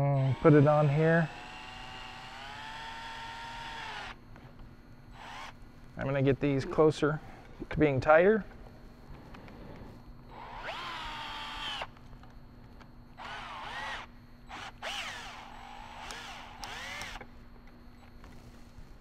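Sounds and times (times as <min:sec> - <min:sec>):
drill motor whining: 0:00.0 - 0:04.2, 0:05.1 - 0:05.6, 0:10.3 - 0:12.0, 0:13.1 - 0:17.3.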